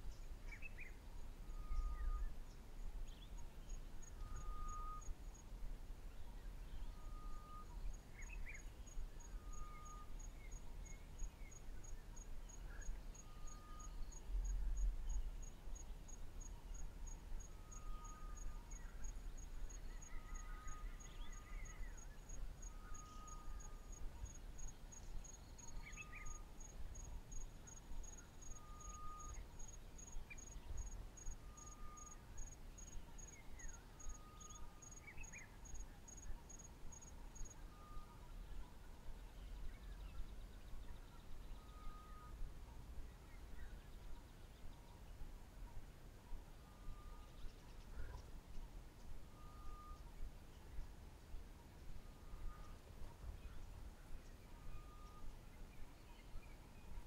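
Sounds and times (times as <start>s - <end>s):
insect chirping in high pulses: 16.4s - 38.3s.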